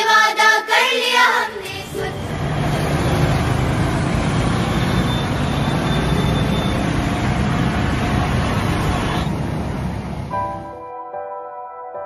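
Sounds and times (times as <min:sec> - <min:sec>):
loud road traffic: 0:01.2 - 0:10.8
soft piano music: 0:10.2 - 0:12.0.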